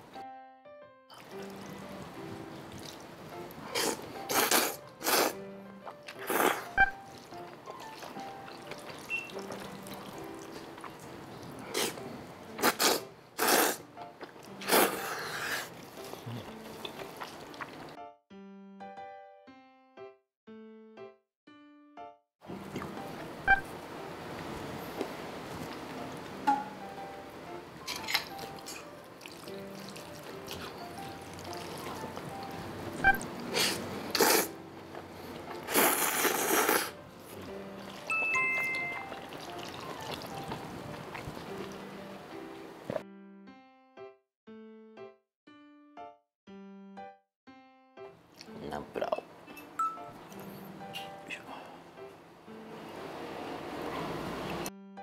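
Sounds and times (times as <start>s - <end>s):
soft background music: 0.0s - 18.2s, 21.0s - 44.2s, 47.0s - 55.0s
noodles slurped loudly: 3.7s - 5.4s, 11.6s - 12.0s, 12.6s - 13.8s, 33.5s - 34.5s, 35.6s - 37.0s.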